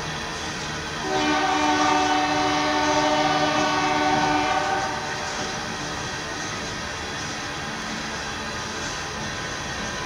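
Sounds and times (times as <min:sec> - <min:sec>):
train rumbling past: 0:00.0 - 0:10.0
locomotive air horn blast: 0:01.0 - 0:05.3.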